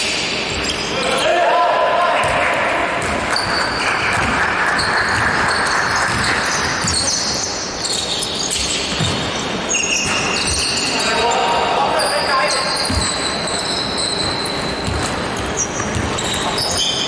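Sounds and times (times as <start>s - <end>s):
sneakers squeaking on court: 0.0s - 1.0s, 2.2s - 17.0s
basketball bouncing: 2.2s - 7.4s, 8.5s - 10.8s, 12.8s - 13.5s, 14.2s - 16.8s.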